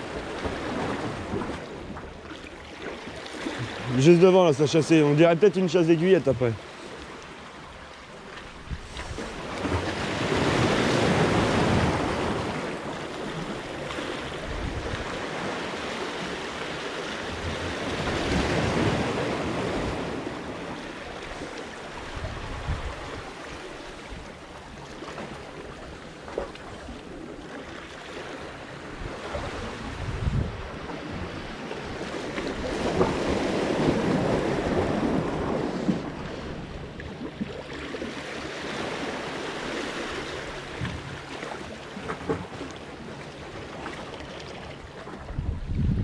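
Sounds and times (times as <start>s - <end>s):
surf washing against rocks: 0.0s - 46.0s
wind buffeting microphone: 8.5s - 12.8s, 14.3s - 15.5s, 22.0s - 23.4s, 28.9s - 37.0s, 45.2s - 46.0s.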